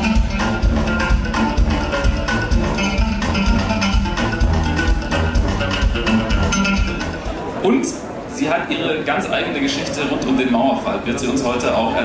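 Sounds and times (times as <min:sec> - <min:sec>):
live band music: 0:00.0 - 0:07.6.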